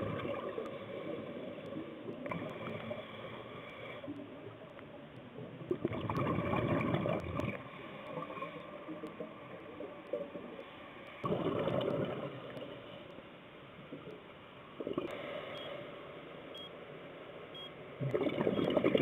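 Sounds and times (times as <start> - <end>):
regulator bubbles underwater: 0.0 - 3.3, 5.4 - 10.6, 11.2 - 12.8, 18.0 - 19.0.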